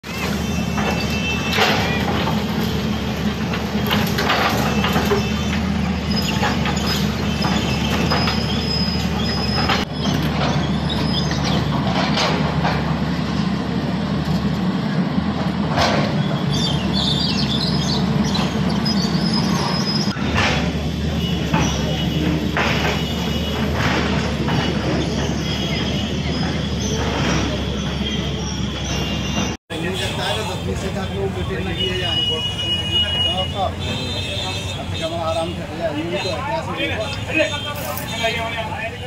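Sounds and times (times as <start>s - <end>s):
excavator diesel engine running: 0.0s - 31.8s
rubble and metal clattering: 0.2s - 28.0s
high squeals: 4.5s - 11.8s, 16.2s - 20.2s.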